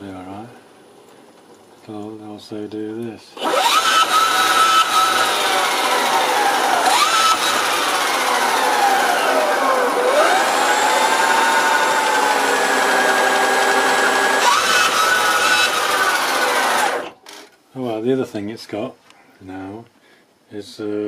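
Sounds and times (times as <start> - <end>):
electric motor whine: 3.4 - 17.2.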